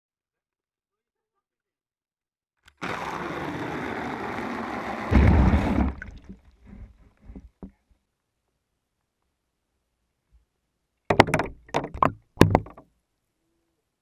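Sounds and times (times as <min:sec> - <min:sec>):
water pouring into bucket: 0:02.8 - 0:06.5
deep splash: 0:05.0 - 0:06.4
water sloshing and dripping: 0:05.2 - 0:07.6.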